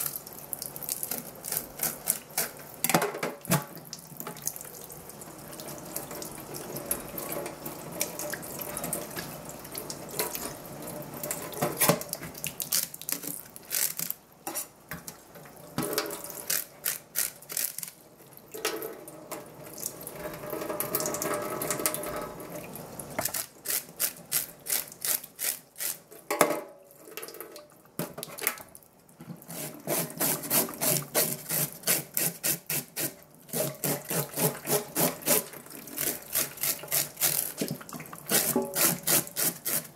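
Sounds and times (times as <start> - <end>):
tap water running into sink: 18.4 - 23.4, 33.6 - 39.9.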